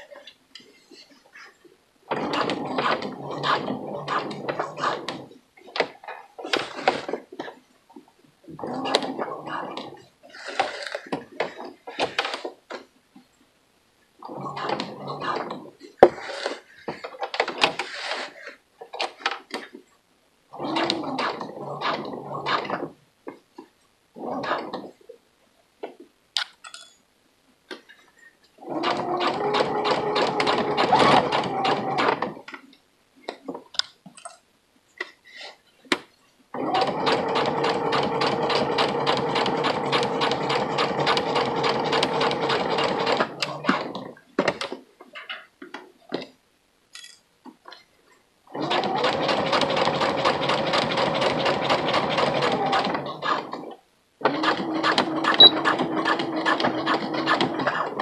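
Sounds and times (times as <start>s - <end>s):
sewing machine stitching: 2.1s - 5.2s, 20.5s - 22.9s, 28.6s - 32.4s, 36.6s - 44.2s, 48.5s - 58.0s.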